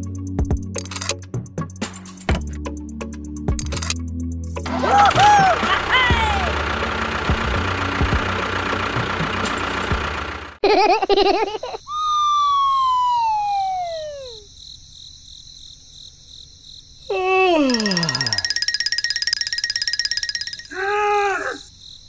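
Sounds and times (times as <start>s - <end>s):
steady machine noise: 4.7s - 10.6s
descending whistle: 11.9s - 14.5s
warbling siren-like tone: 12.5s - 14.4s.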